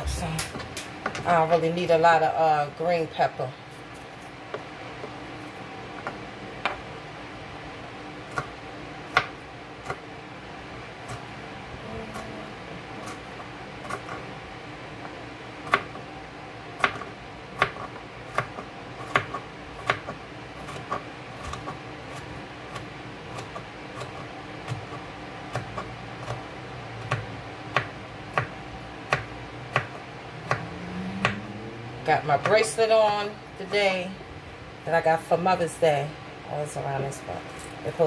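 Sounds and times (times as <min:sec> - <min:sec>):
knife chopping on cutting board: 0:08.3 - 0:10.0, 0:15.6 - 0:16.0, 0:16.8 - 0:31.4.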